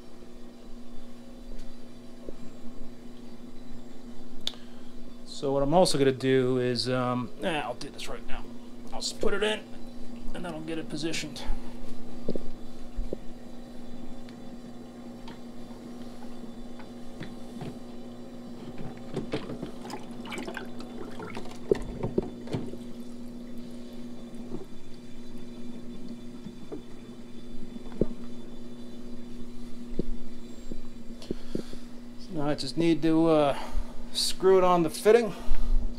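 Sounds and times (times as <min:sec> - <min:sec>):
steady hum: 0:00.0 - 0:35.9
water sloshing and splashing: 0:18.7 - 0:25.4.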